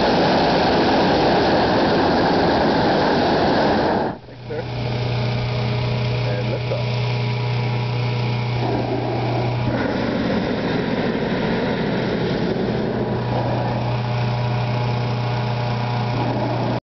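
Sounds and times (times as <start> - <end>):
propane burner roaring: 0.0 - 16.8
steady engine hum: 0.0 - 16.8.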